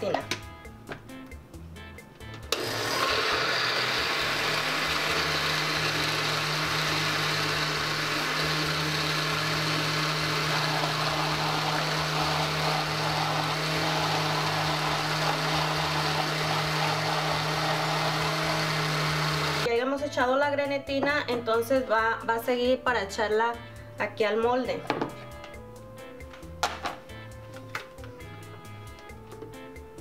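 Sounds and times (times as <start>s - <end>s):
blender motor hum: 2.5s - 19.7s.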